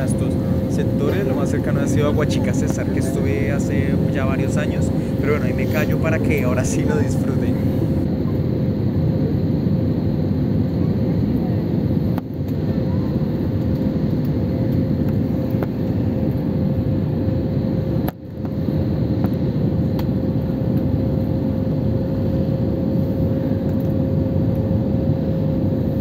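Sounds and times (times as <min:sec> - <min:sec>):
faint steady hum: 0:00.0 - 0:08.2
airplane cabin engine roar: 0:00.0 - 0:26.0.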